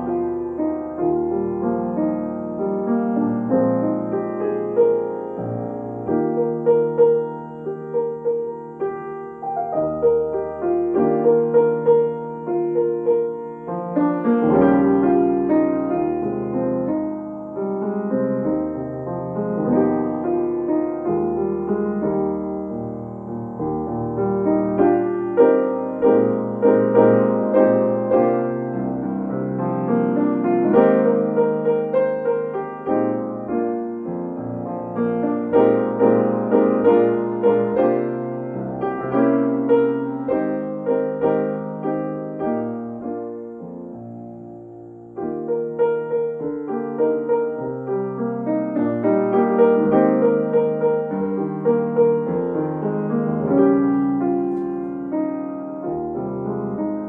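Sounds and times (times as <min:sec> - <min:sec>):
solo piano playing chords: 0:00.0 - 0:57.0.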